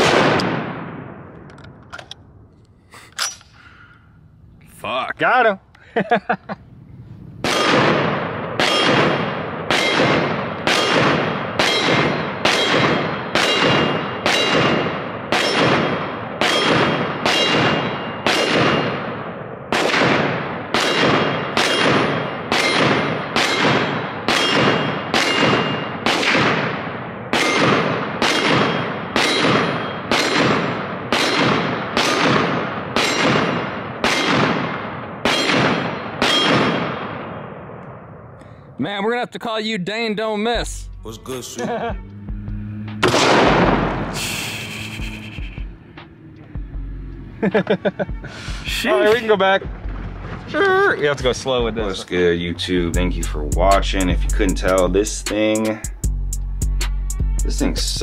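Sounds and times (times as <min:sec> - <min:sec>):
rifle rounds striking steel targets: 0:07.4 - 0:37.2.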